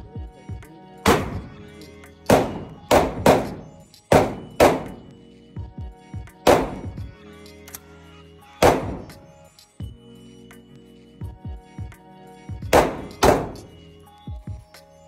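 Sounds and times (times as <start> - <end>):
faint music: 0.0 - 15.0
handgun shots echoing indoors: 1.1 - 1.5, 2.3 - 5.0, 6.5 - 6.9, 8.6 - 9.1, 12.8 - 13.7.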